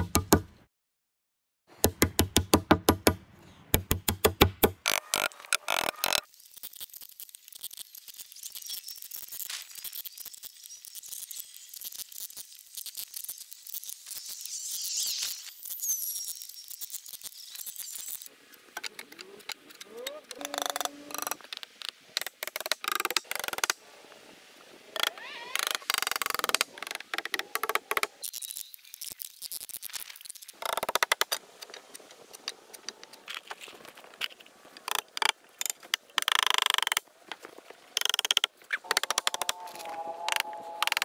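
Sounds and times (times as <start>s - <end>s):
hammer nailing wood: 0.0s - 0.5s, 1.8s - 3.2s, 3.8s - 4.8s.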